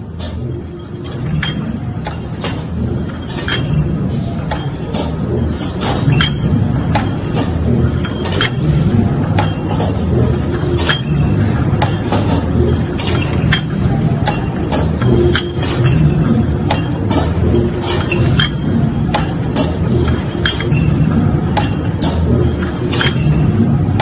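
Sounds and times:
machine mechanical rumble: 0.0s - 24.0s.

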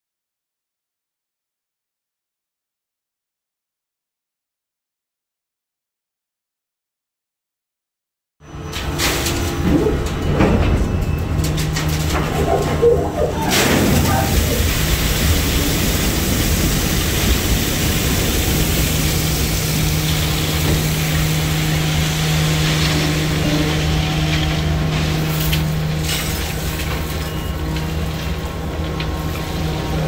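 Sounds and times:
low machine hum: 8.5s - 30.0s
coal pouring into hopper: 13.5s - 30.0s.

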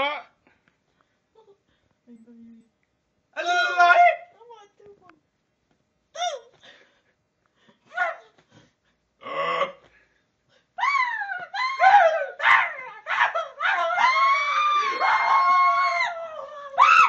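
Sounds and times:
man's falsetto squeals and wails: 10.8s - 17.0s.

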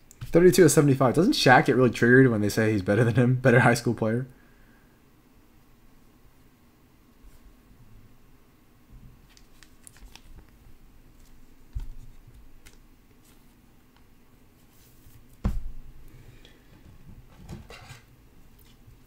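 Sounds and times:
soft thump: 15.4s - 15.8s.

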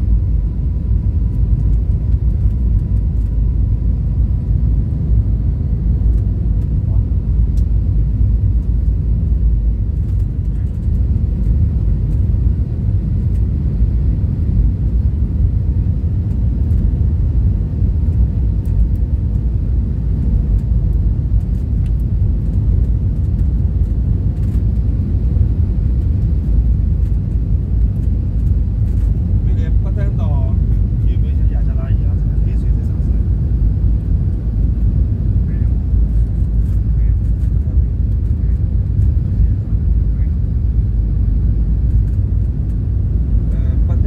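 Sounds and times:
airliner cabin rumble: 0.0s - 44.0s.

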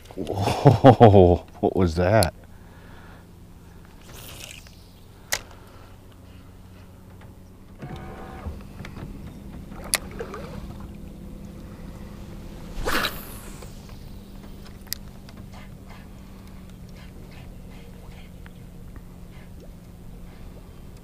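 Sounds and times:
electric motor whine: 3.3s - 16.9s
short swishing burst: 11.8s - 15.2s.

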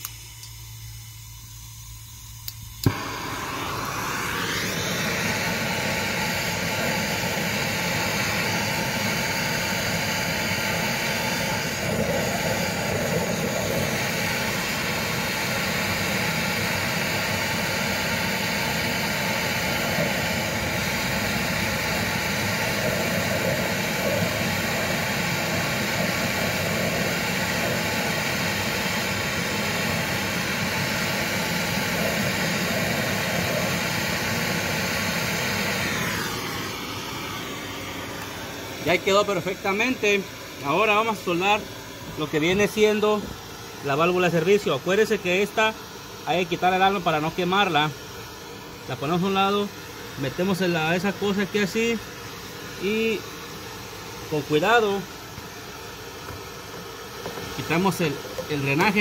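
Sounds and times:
torch igniter click: 0.0s - 0.9s, 2.4s - 14.6s
torch flame hissing: 0.0s - 59.0s.

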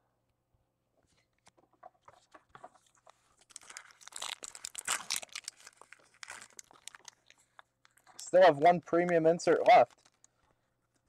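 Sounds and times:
wrapper tearing and crinkling: 3.4s - 8.2s, 9.5s - 10.5s.

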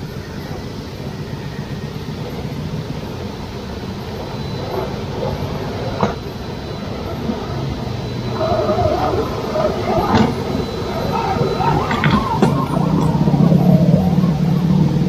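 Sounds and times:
electric motor whine: 0.0s - 15.0s
steady rushing background: 0.0s - 15.0s.

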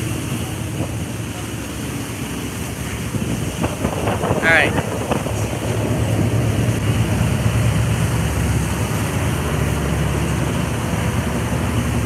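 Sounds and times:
boat engine running: 0.0s - 12.0s
water rushing: 0.0s - 12.0s
wind rushing: 2.8s - 8.9s.

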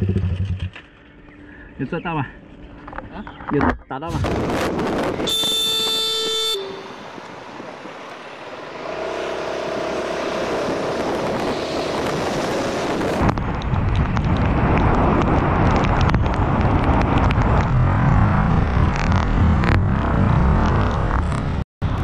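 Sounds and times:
street and traffic noise: 0.0s - 22.0s
wind and wet-road noise: 2.4s - 22.0s
motorcycle horn blast: 5.3s - 7.2s.

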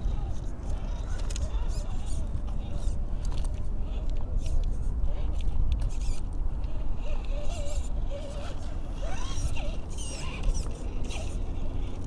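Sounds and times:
steady low rumble: 0.0s - 12.0s
toy car motor and gears whining: 0.0s - 12.0s.

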